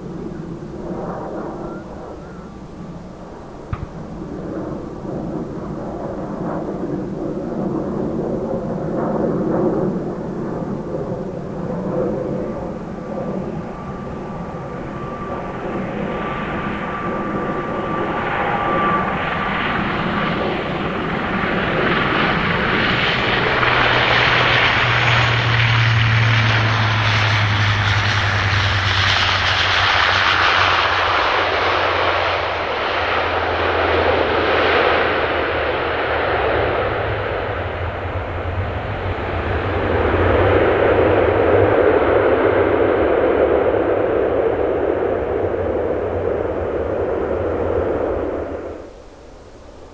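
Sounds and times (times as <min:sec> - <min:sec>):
propeller roar and drone: 0:00.0 - 0:49.9
turboprop engine hum: 0:00.0 - 0:49.9
thin engine whine: 0:10.0 - 0:49.9.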